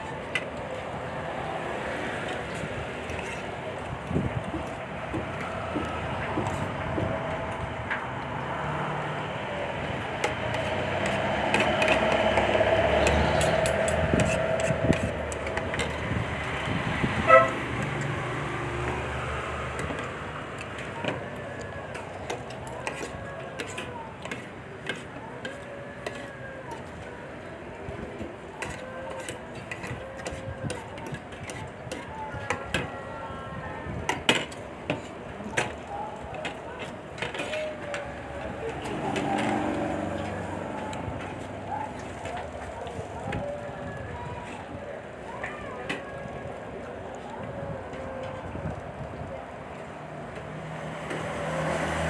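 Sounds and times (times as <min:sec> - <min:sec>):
vehicle passing: 0:00.0 - 0:22.5, 0:38.0 - 0:43.1, 0:49.9 - 0:52.0
street traffic hum: 0:00.0 - 0:52.0
car horn toot: 0:17.2 - 0:17.6.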